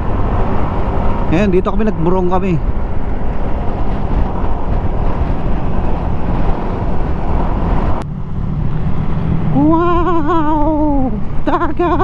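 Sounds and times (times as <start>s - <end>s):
motorcycle engine and road noise: 0.0s - 12.0s
wind buffeting microphone: 0.0s - 12.0s.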